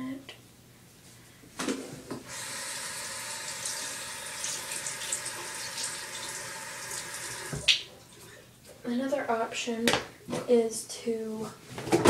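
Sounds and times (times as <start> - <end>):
tap water running into sink: 2.2 - 8.4.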